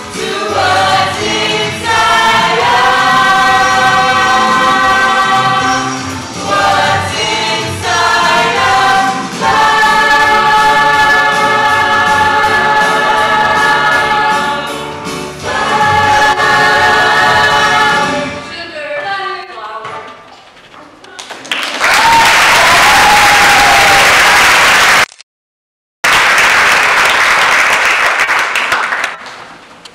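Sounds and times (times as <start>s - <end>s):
group of young voices singing: 0.0s - 19.4s
audience applause: 21.2s - 25.1s, 26.1s - 29.5s.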